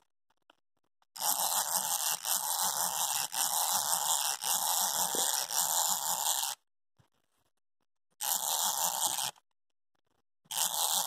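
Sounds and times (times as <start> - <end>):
wind-up toy clockwork whirring: 1.2 - 6.6, 8.2 - 9.4, 10.5 - 11.0.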